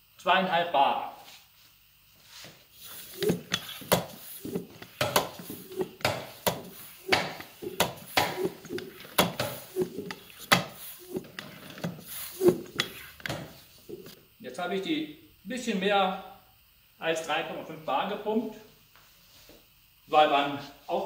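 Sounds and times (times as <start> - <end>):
floor pump strokes: 1.2 - 14.2
pump clicking: 2.9 - 14.2.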